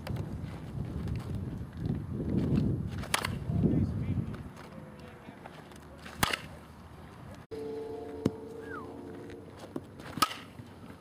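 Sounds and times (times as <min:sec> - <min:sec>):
low steady hum: 0:07.5 - 0:10.9.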